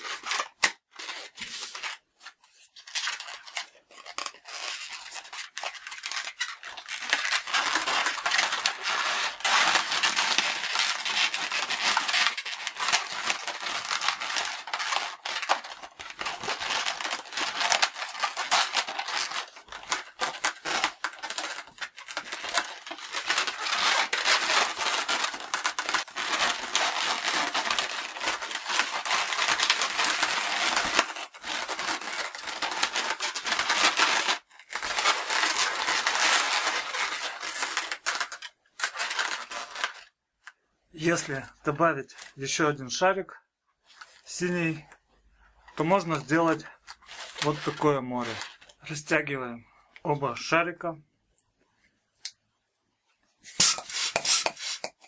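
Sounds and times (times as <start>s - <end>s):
balloons squeaking against each other: 2.9s - 40.1s, 45.8s - 48.6s, 53.4s - 55.0s.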